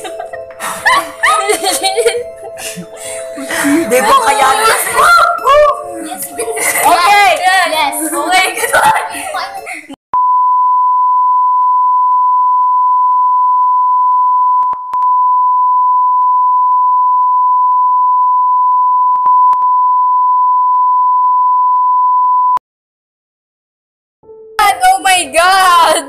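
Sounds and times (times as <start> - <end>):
steady test tone beep: 10.2 - 22.6.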